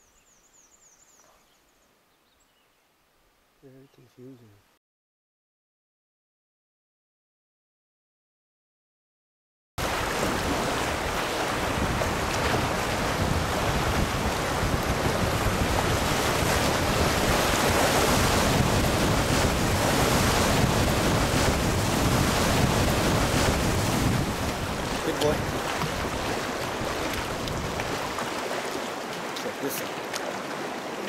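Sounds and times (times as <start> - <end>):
wind buffeting microphone: 9.8 - 28.4
rushing whitewater: 9.8 - 31.0.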